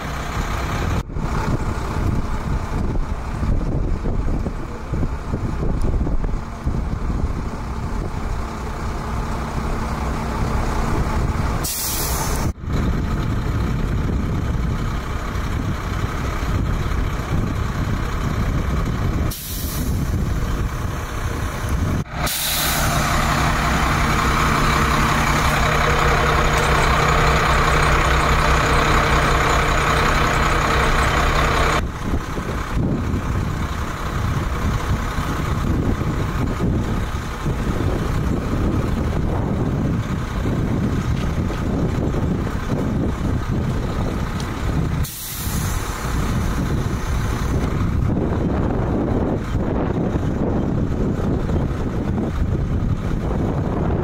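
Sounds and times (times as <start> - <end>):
diesel engine idling: 0.0 - 54.0
air brake hisses: 11.6 - 12.5, 19.3 - 20.1, 22.1 - 23.3, 45.0 - 46.2.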